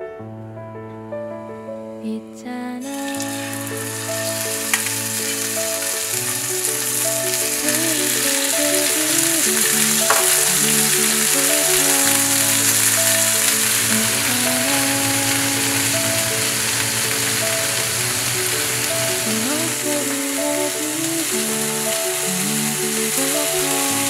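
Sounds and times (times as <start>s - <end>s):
soft background music: 0.0s - 24.0s
steaks sizzling in a skillet: 2.8s - 24.0s.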